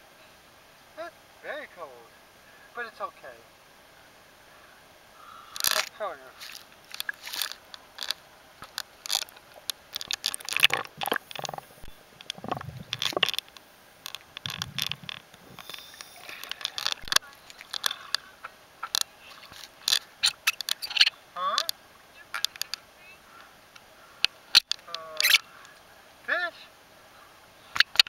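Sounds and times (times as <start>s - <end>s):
water splashing against camera: 5.6s - 22.8s
muffled underwater sounds: 10.0s - 13.4s, 14.1s - 23.4s.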